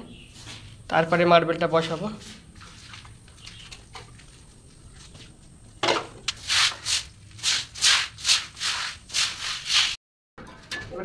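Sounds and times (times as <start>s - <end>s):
broom scrubbing wet cement: 6.3s - 10.0s.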